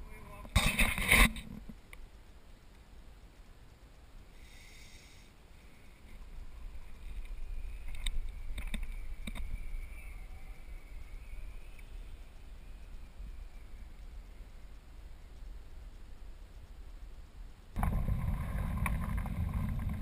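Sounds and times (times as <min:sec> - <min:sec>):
faint clicks: 0:00.4 - 0:02.9, 0:06.0 - 0:10.2, 0:10.8 - 0:14.5
wind rumbling on microphone: 0:05.9 - 0:20.0.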